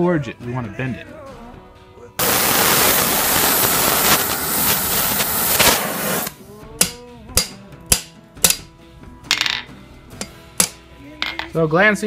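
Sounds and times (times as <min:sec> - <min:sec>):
torch flame hissing: 0:02.2 - 0:06.4
hammer blows on hot steel: 0:02.2 - 0:08.6
guitar music: 0:06.3 - 0:11.8.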